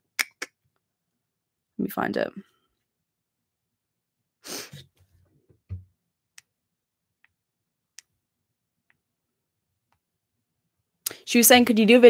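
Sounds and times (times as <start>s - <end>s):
short breath: 4.4s - 4.9s.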